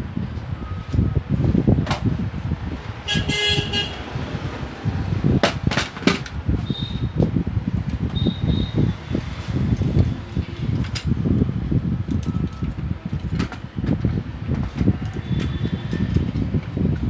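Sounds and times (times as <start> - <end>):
vehicle horn toot: 3.0 - 4.1, 6.6 - 7.1.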